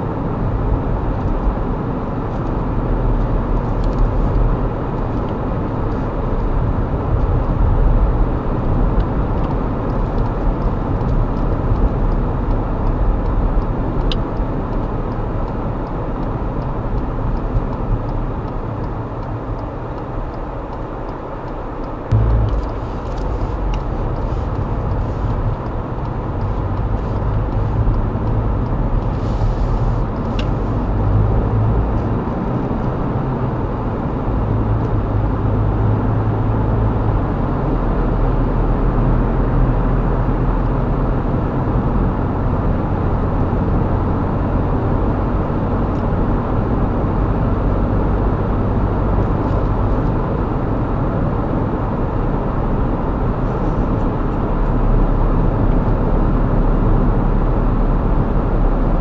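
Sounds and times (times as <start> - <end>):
car road and engine rumble: 0.0 - 59.0.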